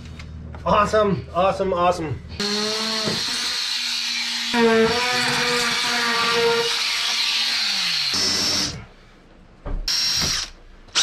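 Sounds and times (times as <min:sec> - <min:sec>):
cordless drill burst: 0:02.4 - 0:08.8, 0:09.9 - 0:11.0
corded drill running: 0:02.4 - 0:08.9, 0:09.9 - 0:11.0.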